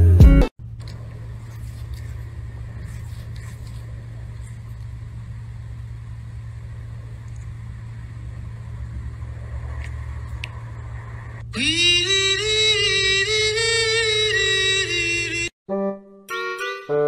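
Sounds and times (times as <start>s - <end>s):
music: 0.0s - 0.5s, 11.6s - 17.0s.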